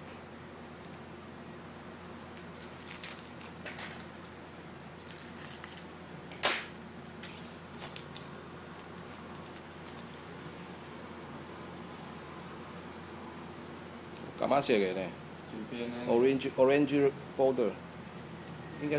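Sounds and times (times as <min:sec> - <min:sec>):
foil wrappers crinkling and tearing: 0:02.3 - 0:04.1, 0:04.9 - 0:10.2.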